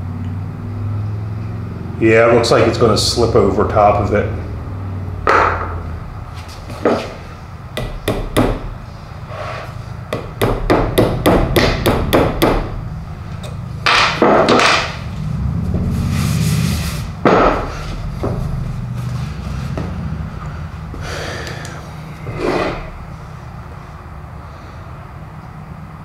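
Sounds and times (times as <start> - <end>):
hammer tapping on metal vise: 7.8 - 8.7, 10.1 - 12.7.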